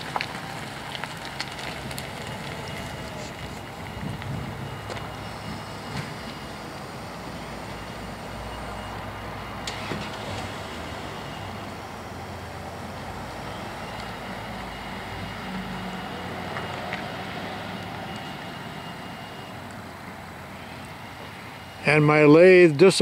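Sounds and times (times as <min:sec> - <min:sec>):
trucks driving past: 0:00.0 - 0:23.0.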